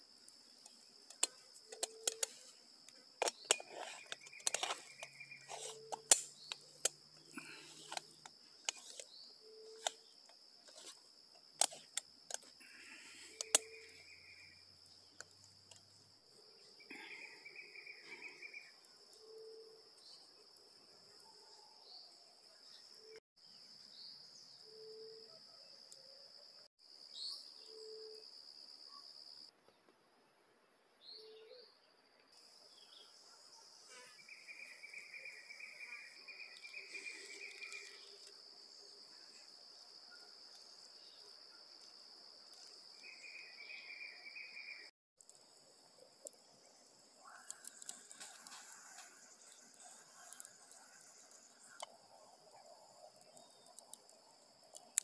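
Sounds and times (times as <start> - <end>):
high insect drone: 0.0 - 21.2, 32.4 - 54.6.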